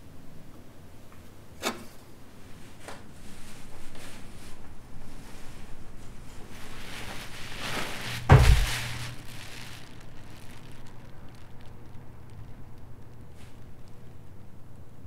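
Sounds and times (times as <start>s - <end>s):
low steady hum: 3.2s - 15.0s
deep booming hit: 8.2s - 9.1s.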